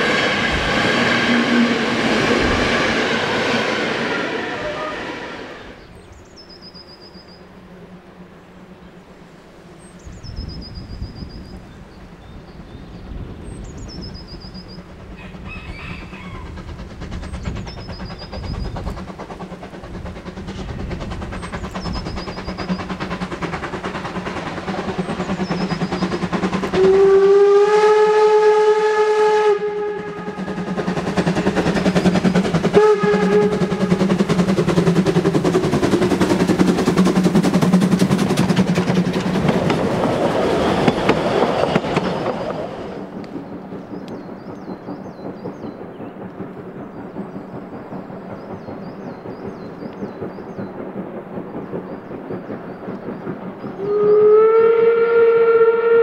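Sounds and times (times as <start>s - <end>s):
steam whistle: 0.0s - 5.8s, 26.7s - 30.7s, 32.7s - 34.2s, 53.8s - 56.0s
steam locomotive exhaust beats: 0.0s - 56.0s
birds chirping: 5.6s - 16.5s, 17.1s - 26.8s, 33.4s - 54.0s
passenger coaches clattering: 30.2s - 54.0s.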